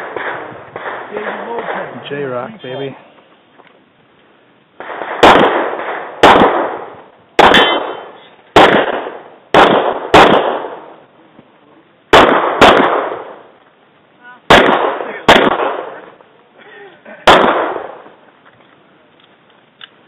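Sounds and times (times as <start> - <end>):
pistol shots echoing: 0.0 - 1.9, 4.8 - 11.0, 12.1 - 13.5, 14.5 - 16.2, 17.2 - 18.2.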